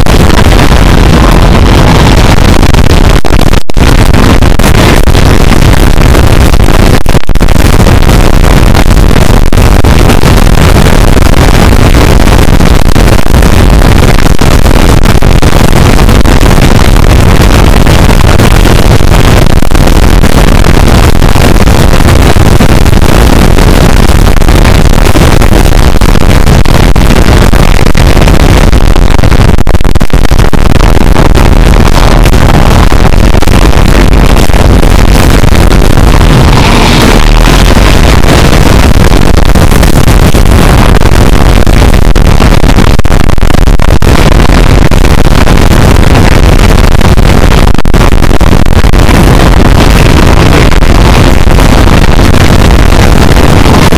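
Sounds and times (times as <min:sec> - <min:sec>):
distorted music from loudspeakers: 0:23.6 - 0:45.5.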